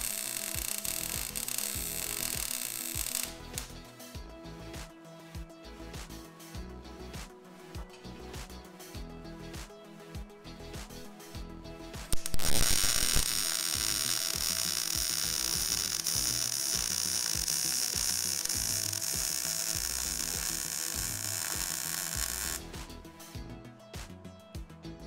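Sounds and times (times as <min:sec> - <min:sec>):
welding arc crackling and hissing: 0:00.0 - 0:03.8, 0:12.1 - 0:23.0.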